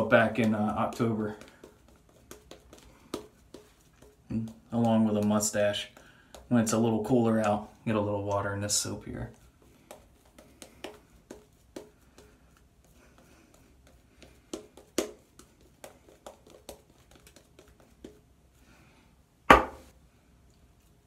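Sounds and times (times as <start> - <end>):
sharp loud knock: 19.5 - 19.9.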